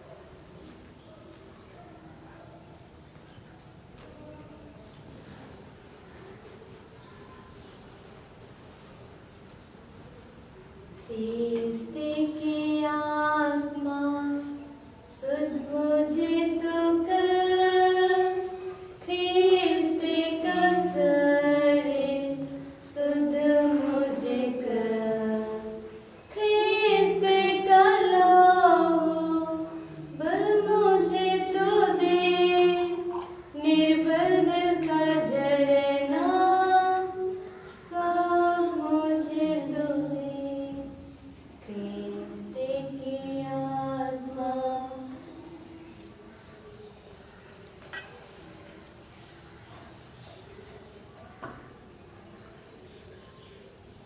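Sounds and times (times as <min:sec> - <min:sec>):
woman singing a hymn: 0:11.1 - 0:45.4.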